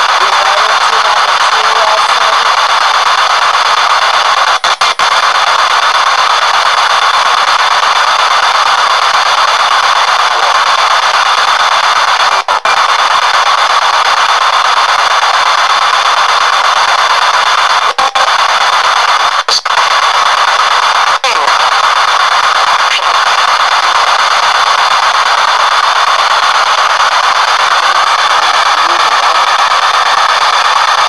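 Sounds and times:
radio static hiss: 0.0s - 31.0s.

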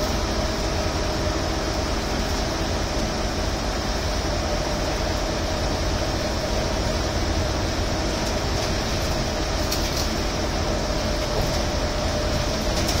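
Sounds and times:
bus interior rumble and hum: 0.0s - 13.0s.

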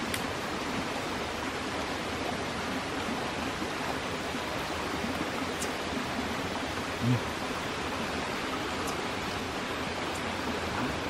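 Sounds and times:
stream water rushing: 0.0s - 11.0s.

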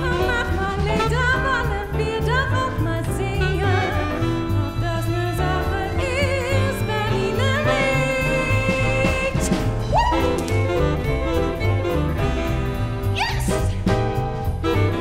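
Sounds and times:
woman singing with vibrato: 0.0s - 10.4s
jazz band with bass line: 0.0s - 15.0s.

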